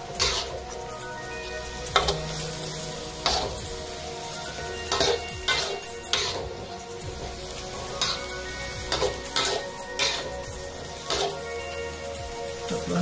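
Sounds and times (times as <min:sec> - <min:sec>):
spatula scraping a pan: 0:00.0 - 0:00.7, 0:04.2 - 0:11.7
meat and vegetables sizzling in a wok: 0:00.0 - 0:13.0.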